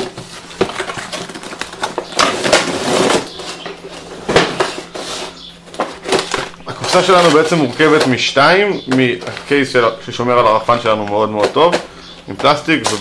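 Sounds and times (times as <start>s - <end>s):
packaging rustling and scraping: 0.0s - 8.2s.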